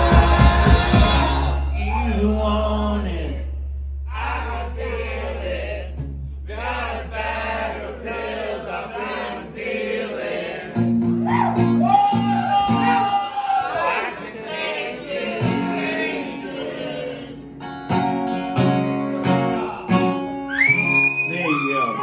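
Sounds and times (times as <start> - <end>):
unaccompanied singing voices: 0.0 - 1.7, 4.1 - 5.9, 6.5 - 10.9, 12.8 - 17.4
acoustic guitar: 0.0 - 8.4, 10.4 - 22.0
ringing low bass note: 1.4 - 8.2.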